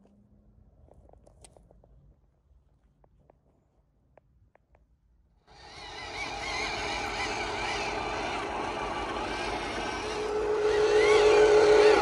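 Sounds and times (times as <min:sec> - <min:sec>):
toy truck motors whining: 0:05.5 - 0:12.0.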